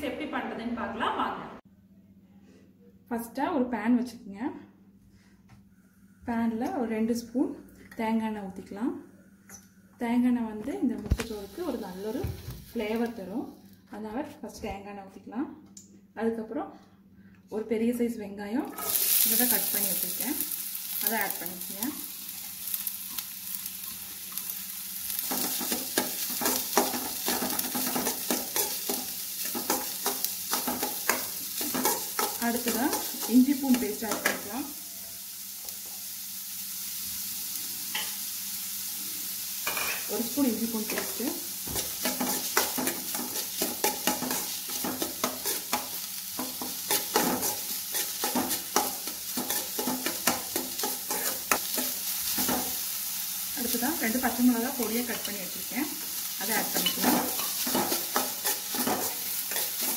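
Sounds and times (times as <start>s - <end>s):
onions sizzling in oil: 11.0s - 13.8s, 18.7s - 59.9s
metal spoon scraping pan: 41.8s - 52.6s, 56.7s - 59.9s.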